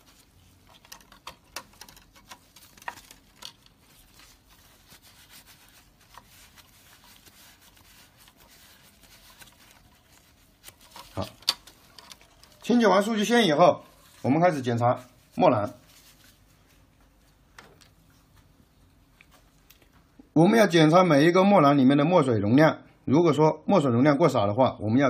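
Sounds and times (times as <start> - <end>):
paper wipe rubbing on cable: 0.0 - 16.9.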